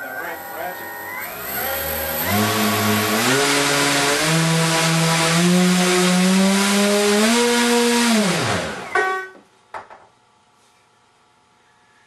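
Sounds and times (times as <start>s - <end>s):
electric motors whirring drone: 0.0s - 9.0s.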